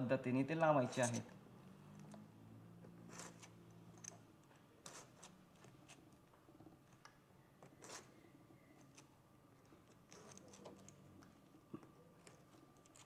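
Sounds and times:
faint small clicks and rustles: 0:03.1 - 0:13.0.

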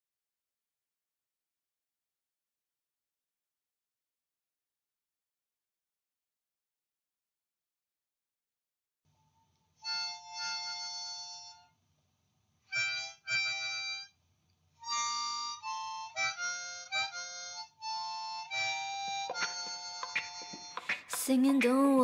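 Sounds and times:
harmonica melody: 0:09.8 - 0:11.8, 0:12.6 - 0:14.2, 0:14.8 - 0:22.0.

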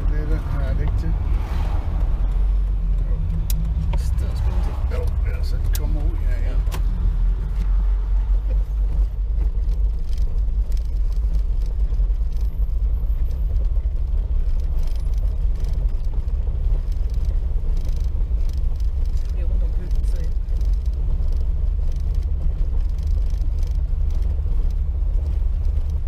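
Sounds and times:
car engine rumbling: 0:00.0 - 0:26.0
tyres on cobblestones: 0:00.0 - 0:26.0.

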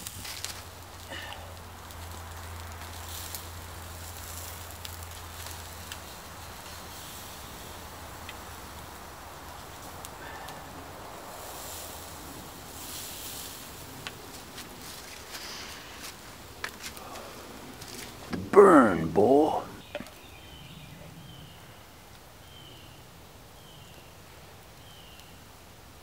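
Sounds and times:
steak sizzling on a grill: 0:00.0 - 0:16.9
small crackles and clicks: 0:00.0 - 0:18.3, 0:23.9 - 0:25.4.

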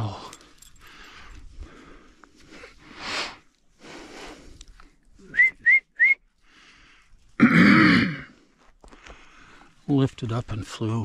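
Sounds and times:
short rising whistle blasts: 0:05.3 - 0:06.2.

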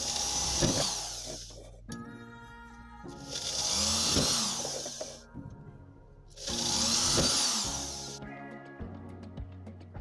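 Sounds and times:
electric drill cutting sheet metal: 0:00.0 - 0:01.6, 0:03.2 - 0:05.2, 0:06.4 - 0:08.2.

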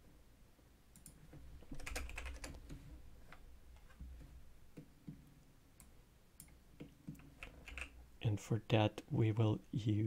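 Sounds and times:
keyboard and mouse clicks: 0:00.9 - 0:08.0.

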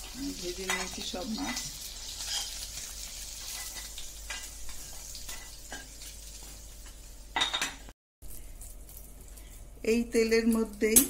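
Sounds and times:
oil sizzling: 0:00.0 - 0:09.4
metal spatula scraping a pan: 0:00.7 - 0:06.0.

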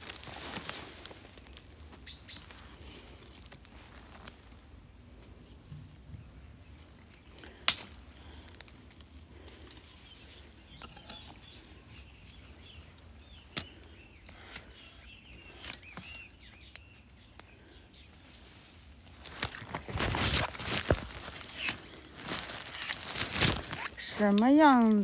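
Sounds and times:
leaves and twigs rustling: 0:00.0 - 0:25.0
twigs cracking: 0:00.0 - 0:25.0
faint bird chirps: 0:02.0 - 0:02.8, 0:09.6 - 0:19.4.

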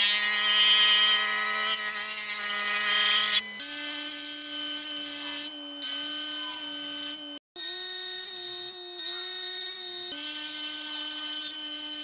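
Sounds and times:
lathe motor whining: 0:00.0 - 0:12.0
hiss and squeal of metal cutting: 0:01.6 - 0:07.1, 0:09.0 - 0:12.0.

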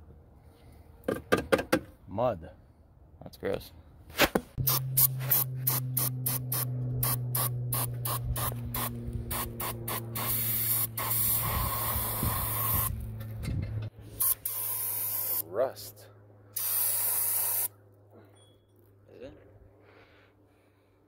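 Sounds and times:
steady low hum: 0:04.5 - 0:14.4
aerosol spray hissing: 0:08.8 - 0:12.8, 0:16.6 - 0:17.7.

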